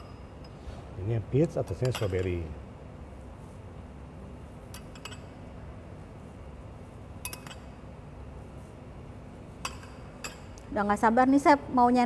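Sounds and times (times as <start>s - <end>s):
low room hum: 0.0s - 12.0s
tableware clinking: 1.7s - 2.4s, 4.7s - 5.4s, 7.2s - 7.8s, 9.6s - 10.6s.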